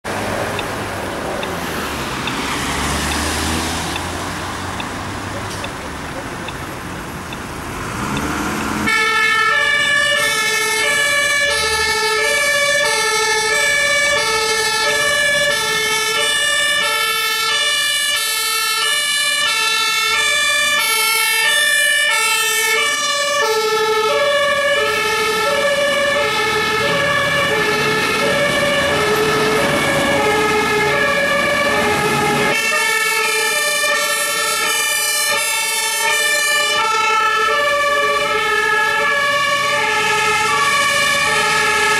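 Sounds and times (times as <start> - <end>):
fire engine two-tone sirens: 0.0 - 41.9.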